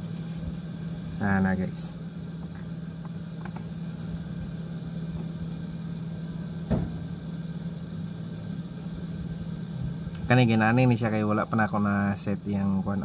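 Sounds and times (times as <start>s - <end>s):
steady low hum: 0.0s - 13.0s
short knock: 6.7s - 7.1s.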